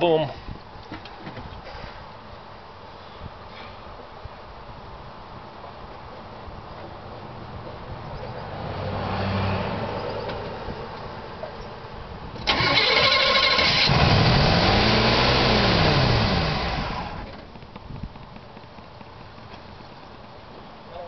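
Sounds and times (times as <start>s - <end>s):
car engine starting and revving: 12.4s - 17.3s.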